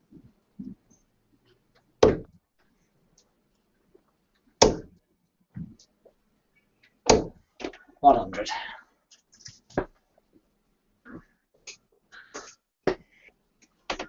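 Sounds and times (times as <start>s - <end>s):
darts striking dartboard: 2.0s - 2.3s, 4.6s - 4.9s, 7.1s - 7.4s.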